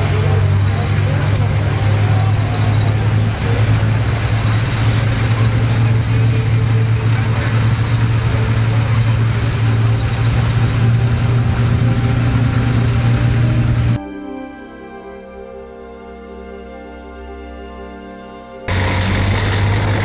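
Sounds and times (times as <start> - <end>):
tracked vehicle engine droning: 0.0 - 14.0, 18.7 - 20.0.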